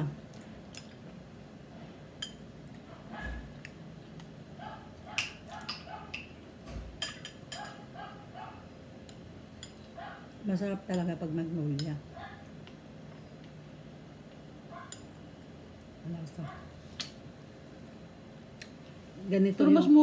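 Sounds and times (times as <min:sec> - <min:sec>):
small dog barking: 0:04.6 - 0:06.2, 0:07.6 - 0:08.7, 0:10.0 - 0:10.3, 0:12.2 - 0:12.4.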